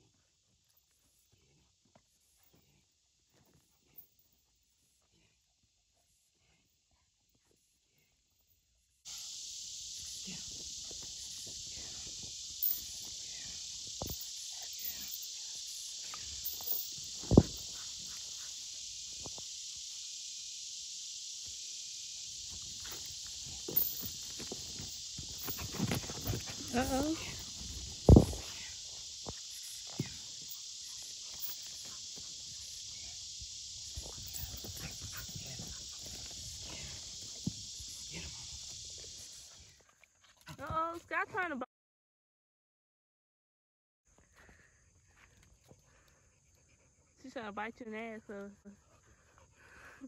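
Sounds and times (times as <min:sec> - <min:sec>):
insects hissing: 0:00.0 - 0:05.4, 0:06.1 - 0:41.6, 0:44.1 - 0:50.0
dog paws on dirt and grass: 0:22.5 - 0:28.6
footsteps scuffling on dirt: 0:22.6 - 0:28.5.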